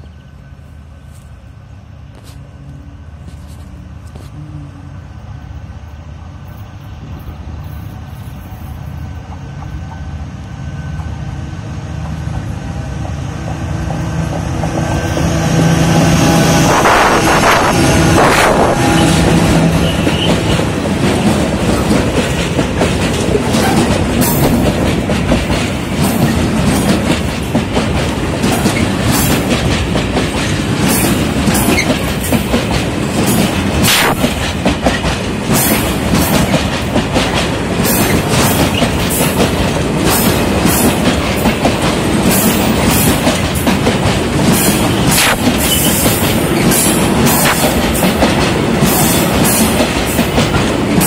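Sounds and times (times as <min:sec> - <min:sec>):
wheels clacking over rail joints: 0:16.7 - 0:51.0.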